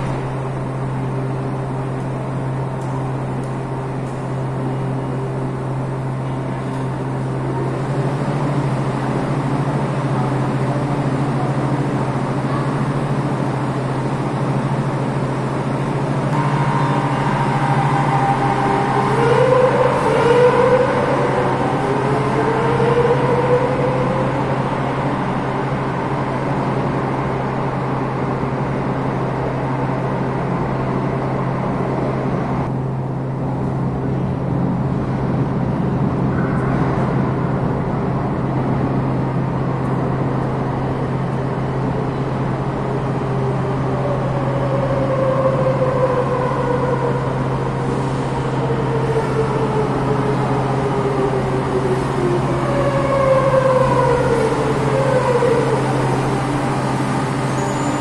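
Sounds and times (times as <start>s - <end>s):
traction motors whining: 0.0s - 27.0s
steady low hum: 0.0s - 58.0s
train pulling out: 0.0s - 58.0s.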